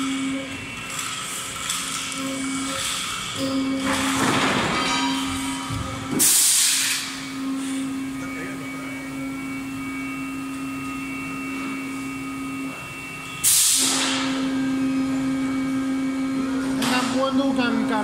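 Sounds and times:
machine hum: 0.0 - 18.0
compressed air hiss: 13.4 - 14.3.

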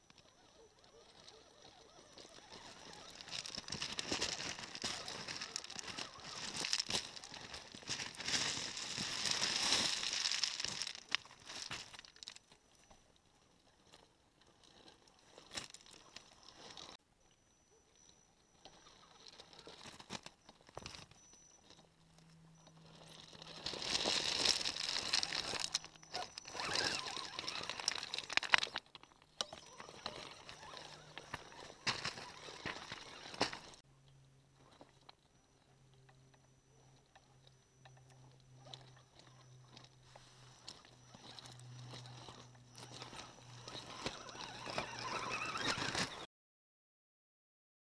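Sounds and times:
stones crunching under tyres: 0.2 - 12.6, 14.5 - 17.0, 22.4 - 33.8, 38.0 - 46.3.

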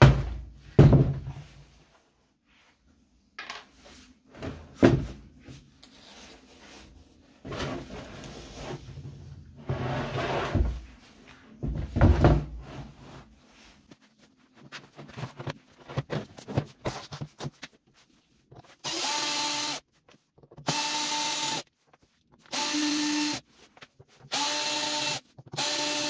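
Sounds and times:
wood scraping on wood: 7.4 - 10.8.

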